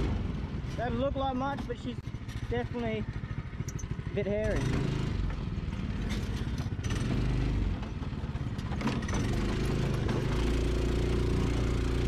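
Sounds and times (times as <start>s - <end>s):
buggy engine running under load: 0.0s - 12.0s
chassis knocks and rattles: 4.6s - 10.5s.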